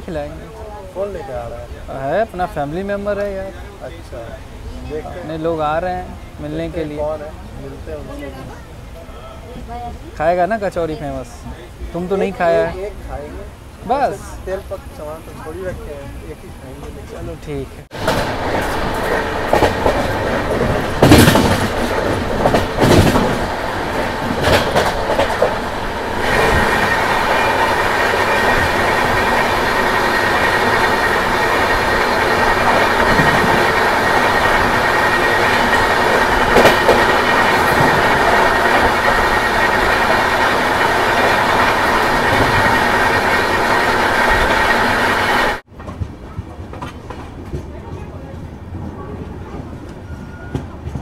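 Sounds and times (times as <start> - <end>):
passing train rushing: 0.0 - 51.0
train wheels clicking over rail joints: 18.0 - 48.0.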